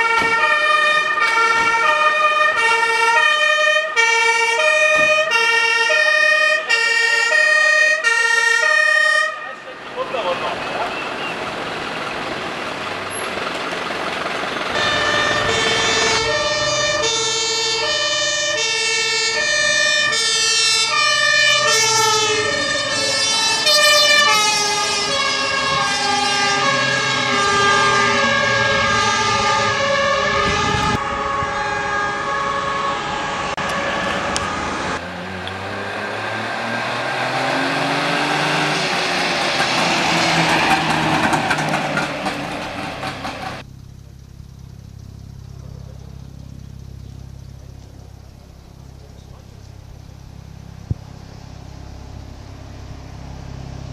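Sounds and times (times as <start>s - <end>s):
two-tone sirens: 0.0s - 12.3s, 14.5s - 43.4s
fire truck engines: 0.0s - 53.9s.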